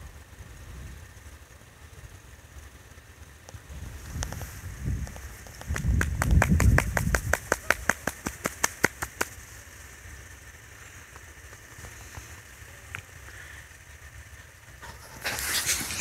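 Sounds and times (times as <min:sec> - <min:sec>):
rapid sharp clicks: 0:04.2 - 0:13.1
faint steady hush: 0:07.5 - 0:16.0.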